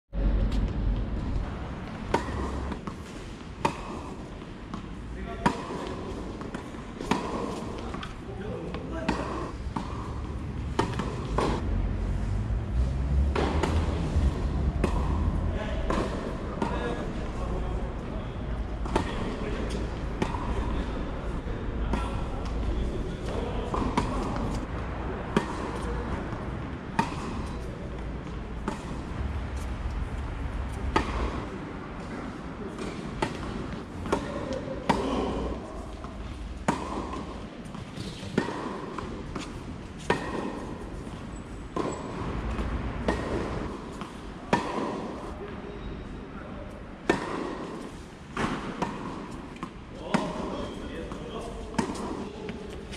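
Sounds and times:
tennis ball hitting racquet: 1.8s - 29.8s, 30.6s - 45.4s, 47.0s - 52.9s.

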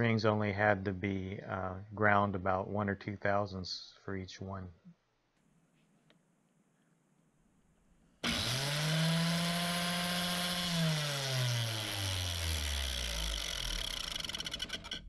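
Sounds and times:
angle grinder whining: 8.2s - 15.0s
fluttering rattle of sanding disc: 8.2s - 15.0s
grinder winding down: 8.2s - 15.0s.

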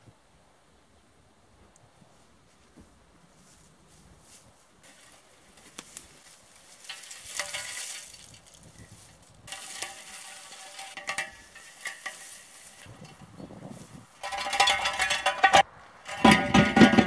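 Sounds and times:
dry twigs crackling: 3.3s - 16.6s
metal scraping and clanking: 6.5s - 17.0s.

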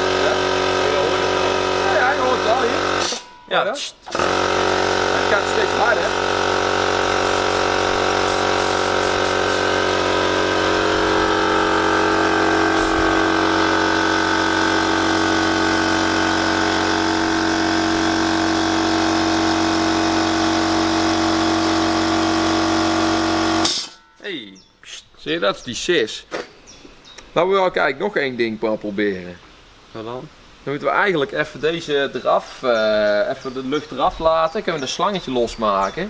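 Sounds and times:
air compressor running: 0.0s - 3.4s, 4.0s - 24.0s.

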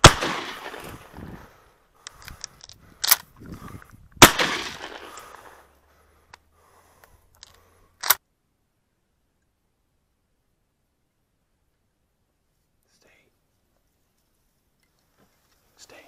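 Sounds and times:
shotgun shot echoing: 0.0s - 1.3s, 4.2s - 5.6s
sharp cracks: 0.0s - 3.6s, 4.2s - 5.7s, 7.0s - 8.2s.

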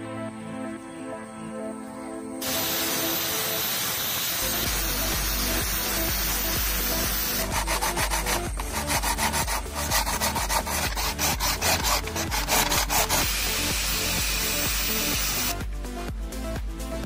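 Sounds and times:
sandpaper rubbing coconut shell: 2.4s - 15.5s
hacksaw cutting coconut: 4.4s - 15.5s.

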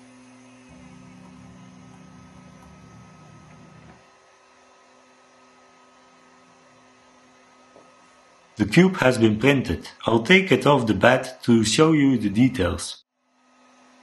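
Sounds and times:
low electrical hum: 0.0s - 14.0s
deep hum layer: 0.7s - 4.0s.

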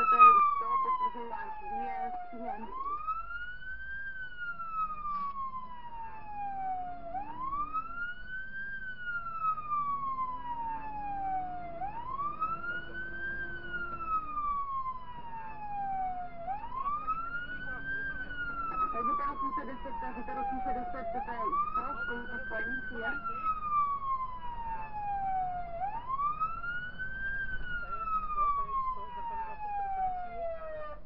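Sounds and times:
fire engine siren wailing: 0.0s - 31.0s
vehicle engine running: 11.5s - 15.7s.

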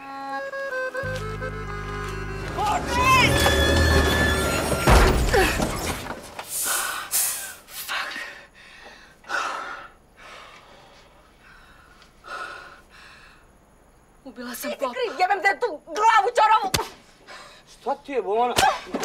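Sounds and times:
music: 0.0s - 4.4s.

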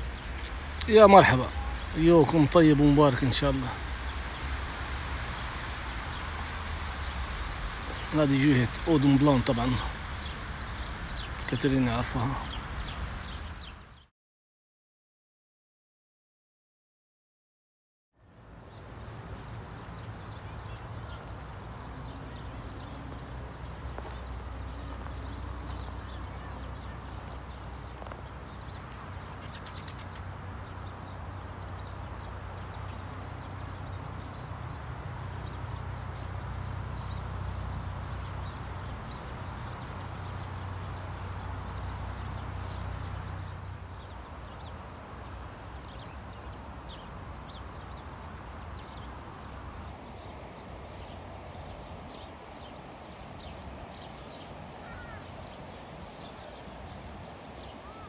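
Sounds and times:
steady low rumble: 0.0s - 14.0s
birds chirping and calling: 0.0s - 14.1s, 18.5s - 58.0s.

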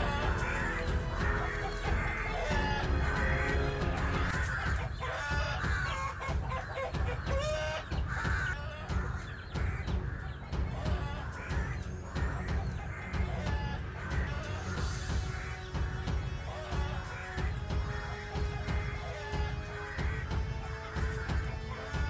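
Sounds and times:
background music: 0.0s - 22.0s
chickens squawking and clucking: 0.0s - 22.0s
wings flapping and scuffling: 0.0s - 22.0s.

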